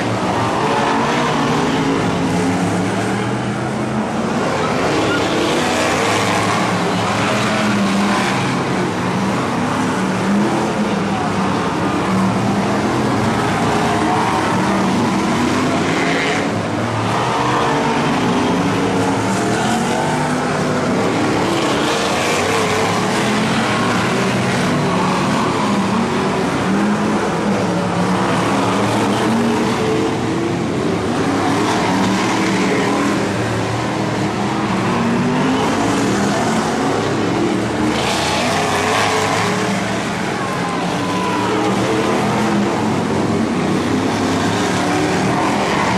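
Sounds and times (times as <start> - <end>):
race car engines passing: 0.0 - 45.9.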